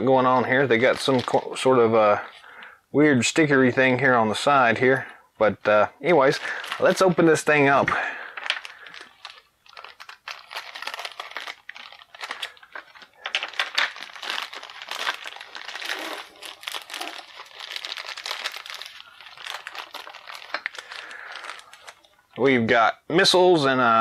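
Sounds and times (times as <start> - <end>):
plastic bag tearing: 0.0 - 2.4, 6.2 - 22.1
plastic bag crinkling: 0.0 - 2.8, 3.7 - 22.4.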